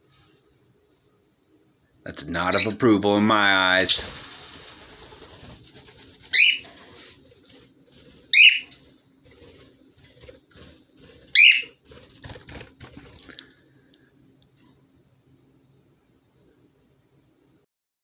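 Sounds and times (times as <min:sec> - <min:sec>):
cockatiel whistled calls: 0:06.3 - 0:06.6, 0:08.3 - 0:08.7, 0:11.4 - 0:11.8.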